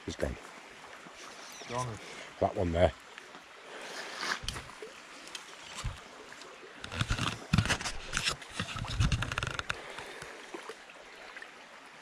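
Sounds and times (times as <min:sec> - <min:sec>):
stream running over stones: 0:00.0 - 0:12.0
scraping and knocking: 0:06.9 - 0:09.8.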